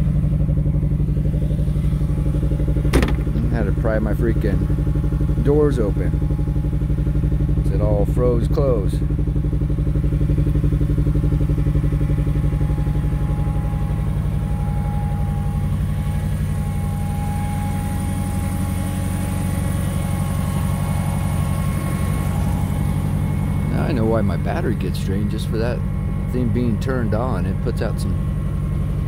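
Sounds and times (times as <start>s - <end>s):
car engine idling: 0.0s - 29.0s.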